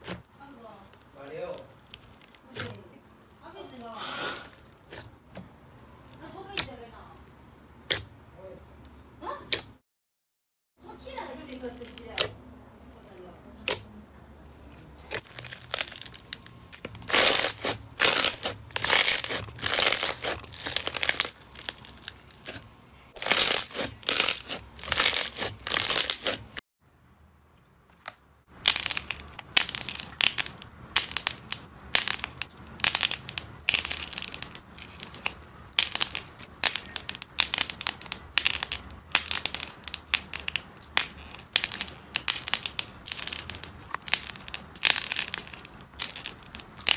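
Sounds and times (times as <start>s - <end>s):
crunchy slime crackling: 0.0s - 8.1s, 15.0s - 26.6s, 28.5s - 46.9s.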